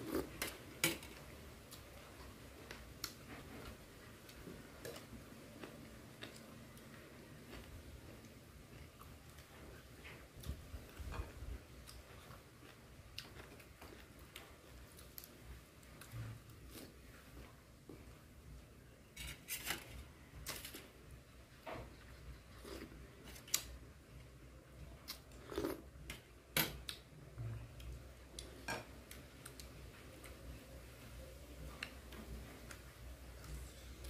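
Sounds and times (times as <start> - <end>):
chewing and crunching: 0.0 - 18.1, 24.9 - 27.1.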